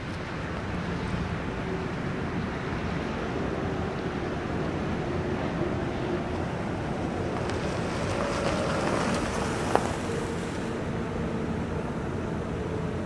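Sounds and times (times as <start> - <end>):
car driving over gravel: 7.2 - 10.8.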